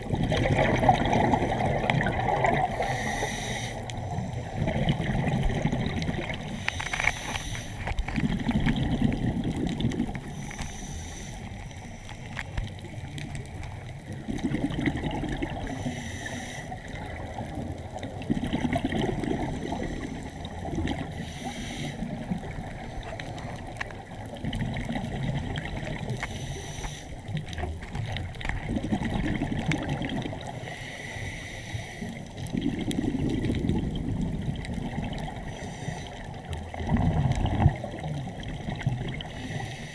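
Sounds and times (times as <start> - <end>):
water sloshing and gurgling: 0.0 - 39.9
short hissing sounds: 2.8 - 3.9, 6.6 - 7.9, 10.4 - 12.3, 15.7 - 16.8, 21.2 - 22.0, 26.3 - 27.2.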